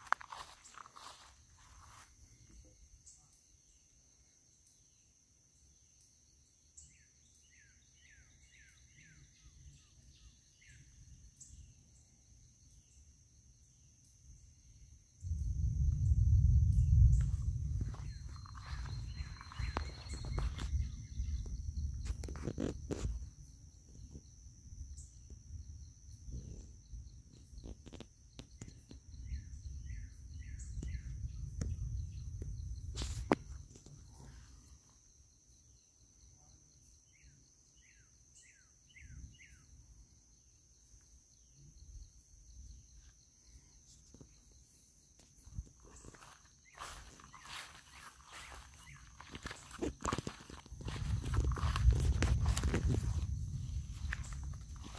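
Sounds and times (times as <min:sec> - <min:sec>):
insect chorus: 0:00.0 - 0:54.9
pulsing insect trill: 0:00.0 - 0:54.9
low rumble on microphone: 0:15.2 - 0:34.8, 0:45.4 - 0:54.9.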